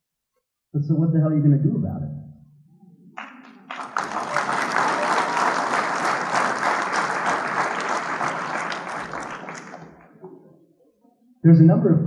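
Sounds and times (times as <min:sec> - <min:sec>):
audience applauding: 0:03.1 - 0:10.2.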